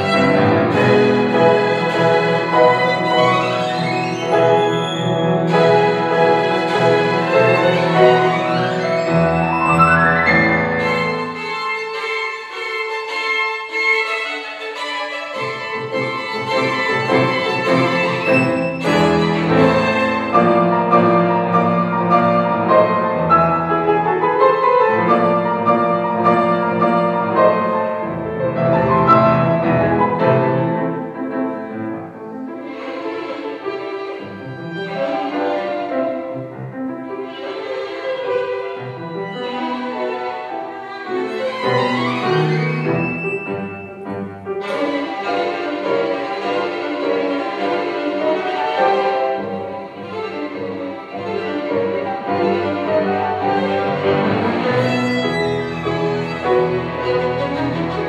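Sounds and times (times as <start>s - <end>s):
piano chords: 0.0s - 58.0s
violin playing bowed melody: 0.0s - 58.0s.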